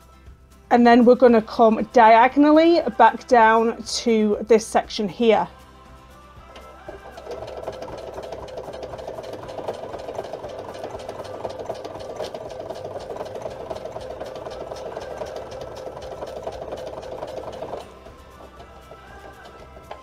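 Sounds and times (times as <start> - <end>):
sewing machine stitching: 6.5 - 20.0.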